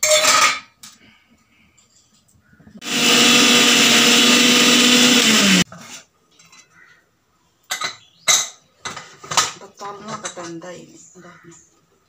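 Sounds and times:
mixer grinder motor: 2.8 - 5.6.

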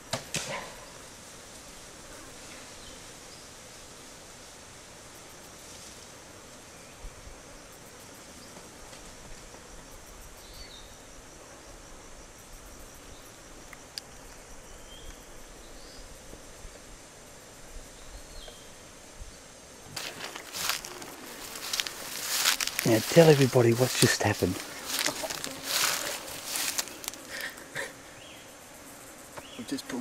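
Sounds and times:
high-pitched insect buzzing: 19.9 - 30.0.

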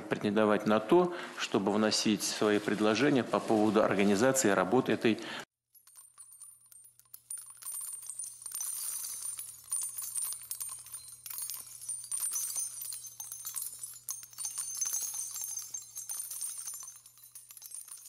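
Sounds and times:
high-pitched jingling: 5.7 - 18.0.

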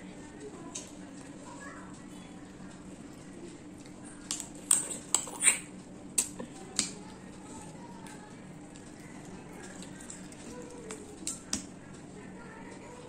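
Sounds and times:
low steady hum: 0.0 - 13.0
chewing clicks and smacks: 2.7 - 12.0.

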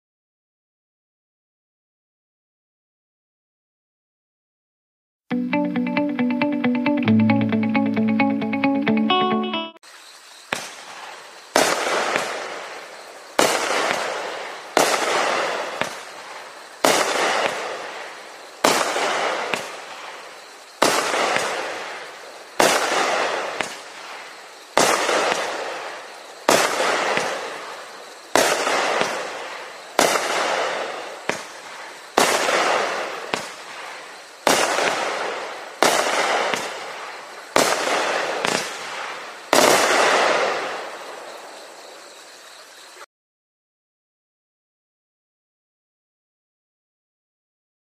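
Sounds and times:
fireworks bangs: 10.0 - 42.9.

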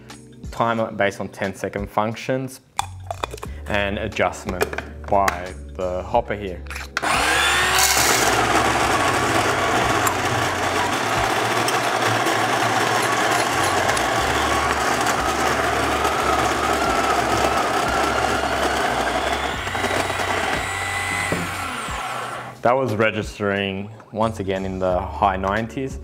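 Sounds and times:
coffee grinder whirring: 7.0 - 22.6.

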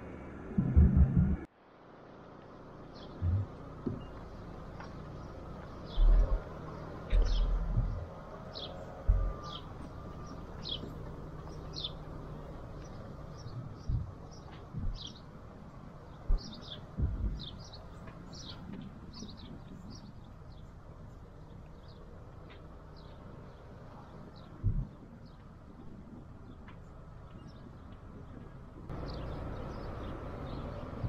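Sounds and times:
dull low thumps: 0.6 - 1.5, 3.1 - 4.1, 5.8 - 11.9, 12.8 - 15.3, 16.1 - 19.9, 24.4 - 29.2
small bird chirping: 2.8 - 15.3.

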